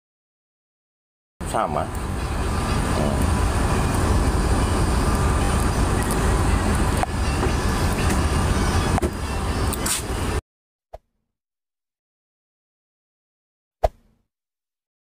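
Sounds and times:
bus engine rumbling: 1.4s - 10.4s.

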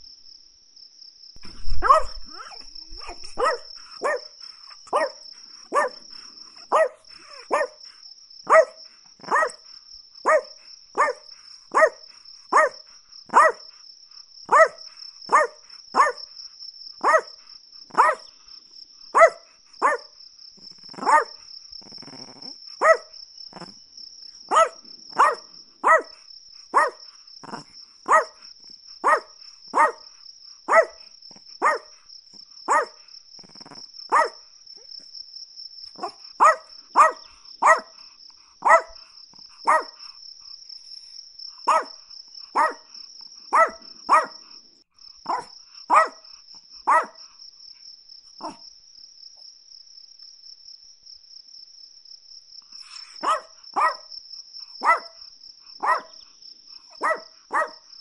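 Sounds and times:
dog barking in sharp yaps: 1.5s - 4.3s, 4.9s - 6.0s, 8.5s - 9.6s, 10.3s - 11.2s, 11.8s - 13.6s, 14.5s - 16.2s, 17.0s - 18.3s, 19.2s - 20.1s, 21.0s - 21.3s, 22.8s - 23.1s, 24.5s - 27.0s, 28.1s - 28.4s, 29.0s - 30.0s, 30.7s - 31.0s, 31.6s - 31.9s, 32.7s - 33.0s, 34.1s - 34.4s, 36.0s - 37.9s, 38.6s - 39.0s, 39.7s - 40.0s, 41.7s - 42.0s, 42.6s - 42.8s, 43.5s - 44.3s, 45.3s - 46.2s, 46.9s - 47.2s, 53.0s - 54.1s, 54.8s - 55.2s, 55.8s - 56.2s, 57.0s - 57.8s.

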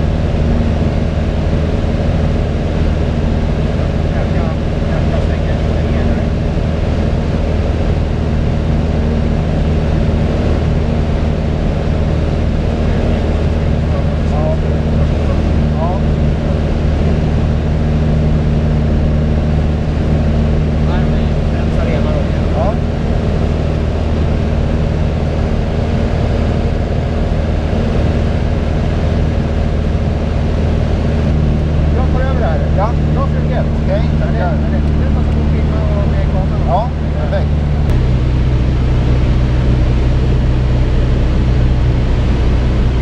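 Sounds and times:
aircraft engine and propeller: 0.0s - 43.0s
rushing airflow: 0.0s - 43.0s.

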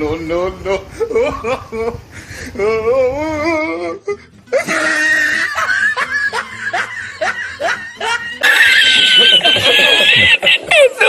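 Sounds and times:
person wailing: 2.6s - 11.0s
shrill cry: 2.6s - 11.0s.

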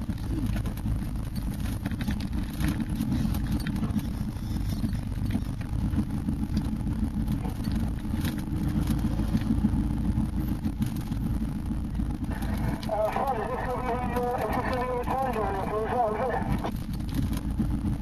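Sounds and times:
vehicle knocks and rattles: 0.0s - 9.8s, 16.6s - 18.0s
engine low rumble: 0.0s - 18.0s.

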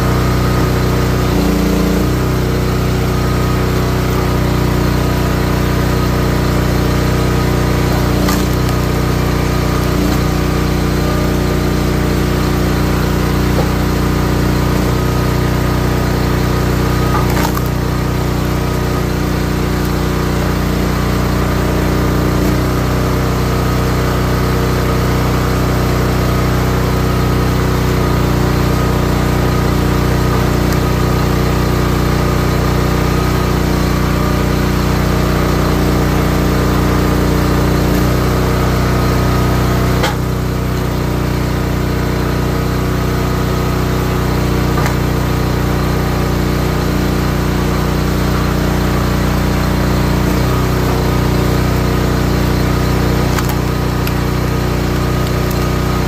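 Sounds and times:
log splitter gas engine running: 0.0s - 56.0s.

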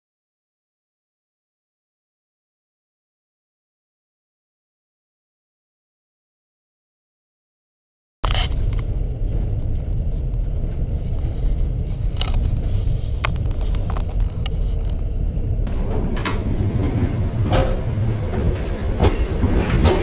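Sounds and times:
train wheels rumbling on track: 8.3s - 20.0s
sharp clicks of train wheels: 15.7s - 20.0s.

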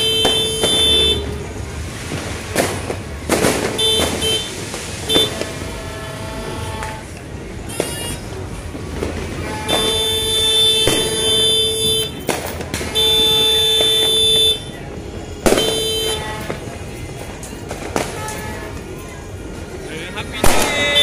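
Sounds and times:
horn blasts: 0.0s - 1.5s, 3.7s - 8.4s, 9.3s - 16.8s
sharp bangs: 0.0s - 7.1s, 8.8s - 14.8s, 15.4s - 18.5s, 20.4s - 21.0s.

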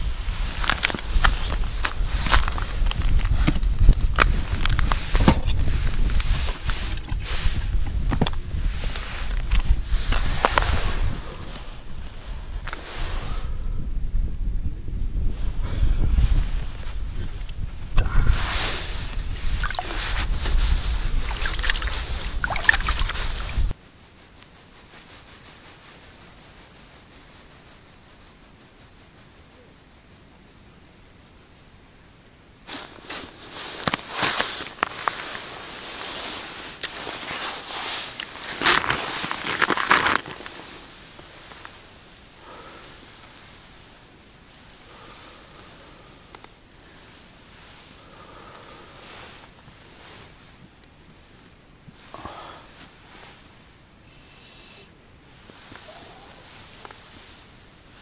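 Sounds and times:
clothing rustling and crackling: 0.0s - 13.4s, 18.4s - 29.2s, 32.6s - 53.8s, 55.2s - 58.0s
wind buffeting microphone: 0.0s - 23.8s.

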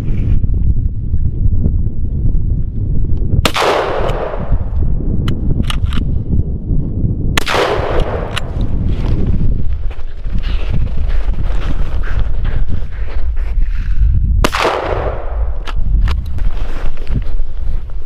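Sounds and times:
wind buffeting microphone: 0.0s - 18.0s
shotgun shots echoing: 3.4s - 4.7s, 7.4s - 8.6s, 14.4s - 15.6s.

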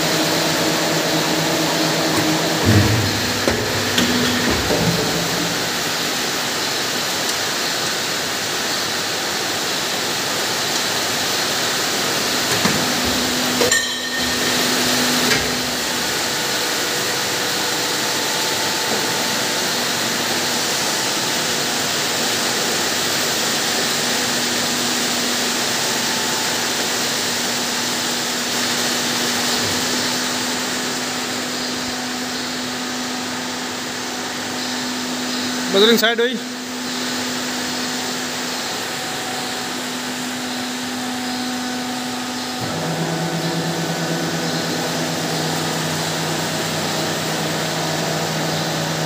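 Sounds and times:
machine running with low hum: 0.0s - 49.0s
sharp machine knocks: 1.6s - 6.4s, 12.4s - 16.4s.

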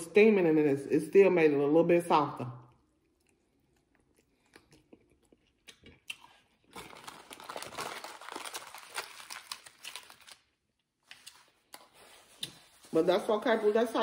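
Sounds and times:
aluminium foil crumpling: 6.2s - 14.0s.

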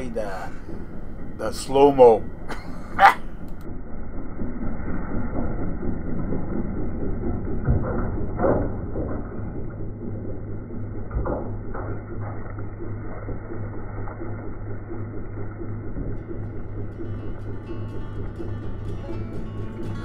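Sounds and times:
tractor diesel engine droning: 0.0s - 20.0s
loader bucket knocking and clattering: 6.3s - 14.2s
music: 16.2s - 20.0s.

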